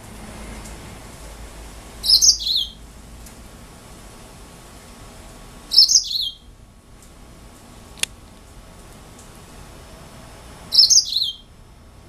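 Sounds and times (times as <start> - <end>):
finch chirping song: 2.0 - 2.8, 5.7 - 6.5, 10.7 - 11.5.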